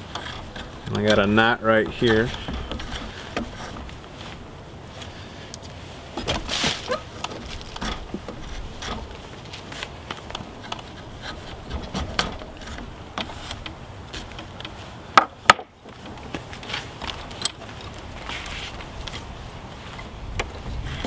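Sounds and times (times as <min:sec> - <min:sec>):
draw knife scraping wood: 0:00.0 - 0:05.4, 0:06.2 - 0:14.8.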